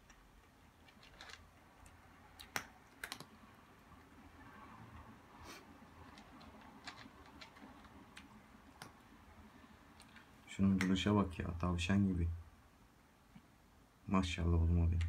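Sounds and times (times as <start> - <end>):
cat crunching dry kibble: 0.0 - 4.2, 5.6 - 9.1.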